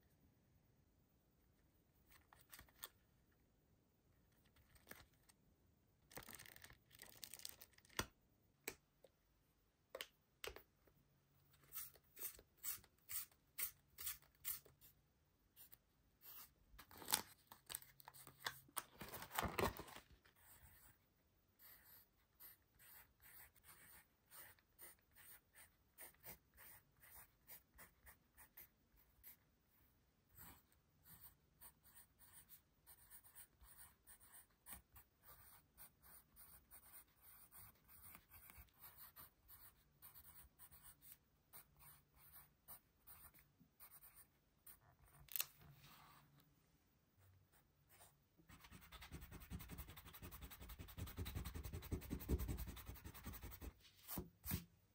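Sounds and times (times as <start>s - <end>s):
notepad pages turning: 2.1s - 3.0s, 4.4s - 5.4s, 6.1s - 8.1s, 16.8s - 20.3s
pencil scratching on paper: 21.6s - 44.8s, 47.5s - 54.6s.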